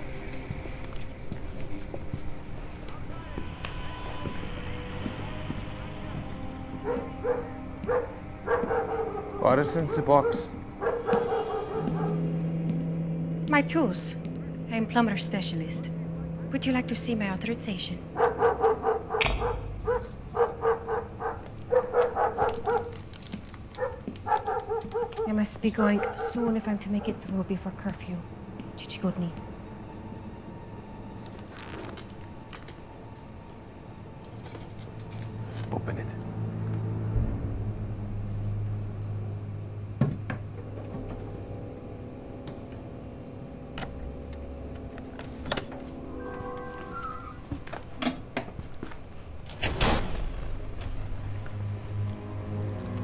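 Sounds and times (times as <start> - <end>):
faint low drone: 0.0 - 23.6, 25.4 - 49.4, 50.0 - 53.0
dog barking: 6.7 - 12.3, 18.1 - 23.0, 23.7 - 27.3.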